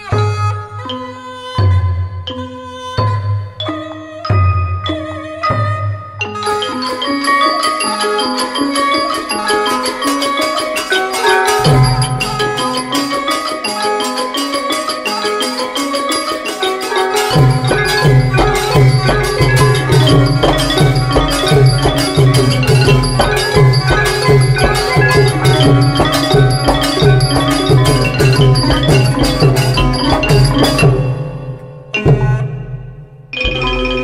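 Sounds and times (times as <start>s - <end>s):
xylophones and gong circles melody: 0.8s - 34.0s
low drum: 11.4s - 12.9s, 17.3s - 34.0s.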